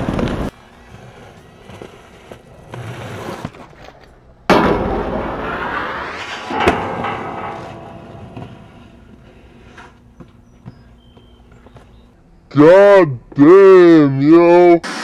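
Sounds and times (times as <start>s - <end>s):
inline skates rolling on concrete: 0.0s - 4.5s, 8.3s - 12.2s
loud skate grind: 0.0s - 10.2s
sharp landing impact: 4.5s - 9.8s.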